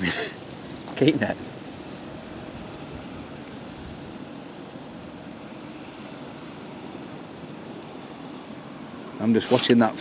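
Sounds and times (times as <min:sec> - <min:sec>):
outdoor rumble and hiss: 0:00.0 - 0:10.0.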